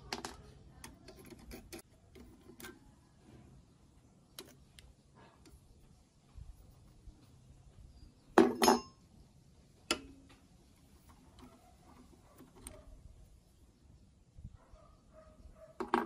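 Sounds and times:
metal clinking: 8.4s - 9.0s.

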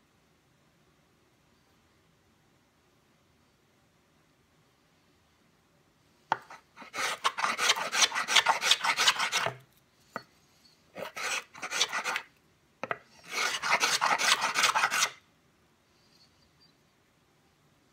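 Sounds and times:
plane scraping wood: 6.4s - 9.6s, 11.0s - 12.3s, 13.2s - 15.2s.

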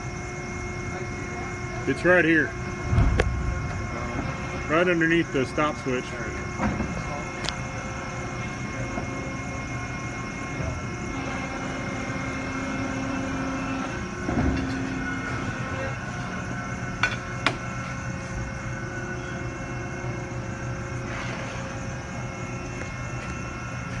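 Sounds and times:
folding machine humming: 0.0s - 24.0s
thump: 2.9s - 3.8s.

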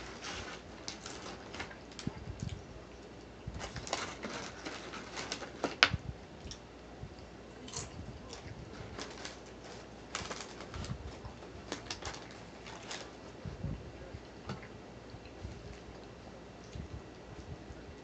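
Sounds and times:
paper wrapper crinkling: 0.0s - 2.2s, 3.6s - 6.0s, 8.3s - 13.4s
mouth clicks and chewing: 14.6s - 17.5s.

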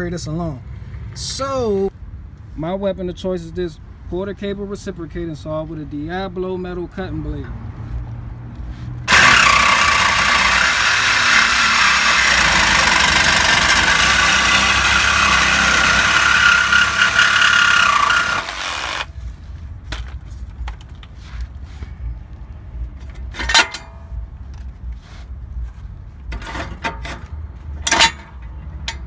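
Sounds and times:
reciprocating saw cutting metal pipe: 9.1s - 19.1s.

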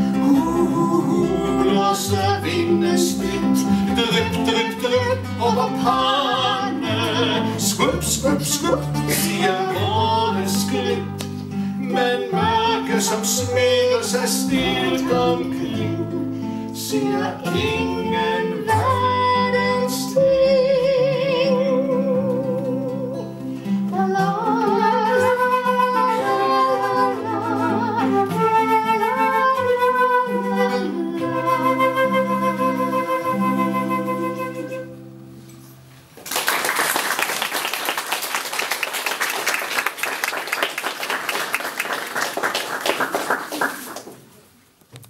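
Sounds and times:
person singing with vibrato: 0.0s - 35.0s
acoustic guitar: 0.0s - 36.4s
flute melody: 24.2s - 35.4s
audience applauding: 36.2s - 44.4s.

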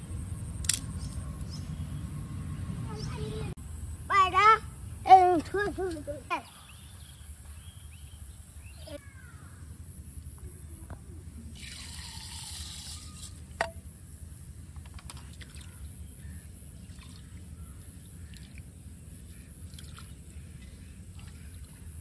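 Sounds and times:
water splashing and sloshing: 14.7s - 22.0s.

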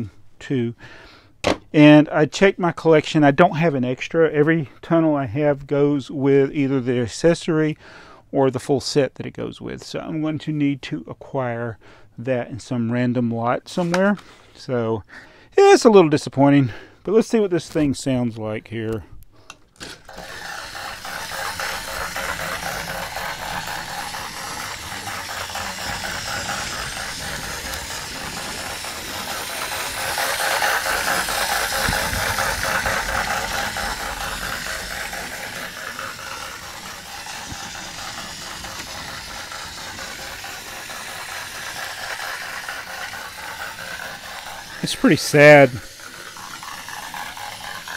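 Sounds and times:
toy train motor whirring: 18.8s - 47.9s.

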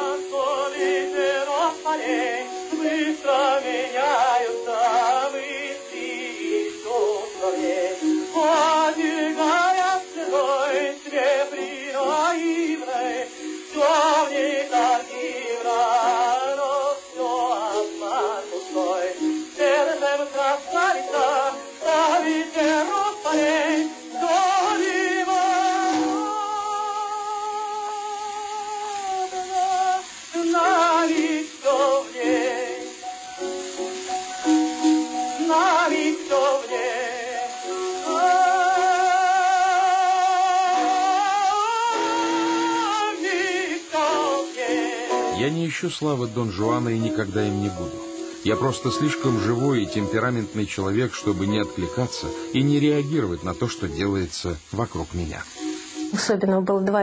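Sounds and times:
classical singer with vibrato: 0.0s - 57.0s
instrumental accompaniment: 30.1s - 57.0s.

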